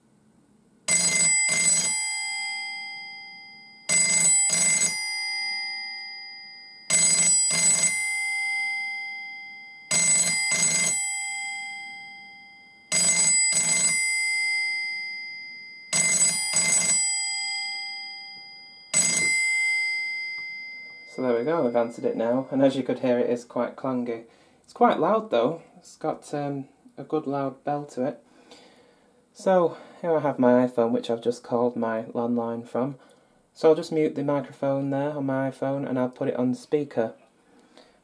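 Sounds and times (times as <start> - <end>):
telephone bell ringing: 0.9 - 22.7.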